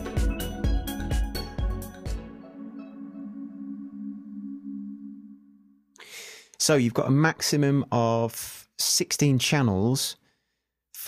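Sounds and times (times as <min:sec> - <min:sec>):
held synth chord: 0:00.0 - 0:06.0.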